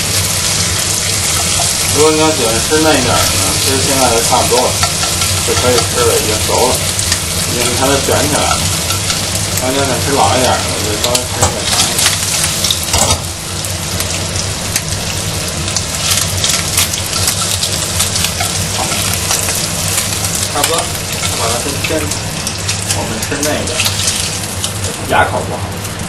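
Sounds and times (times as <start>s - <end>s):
bacon sizzling in frying pan: 0.0s - 26.0s
steady low hum: 0.0s - 26.0s.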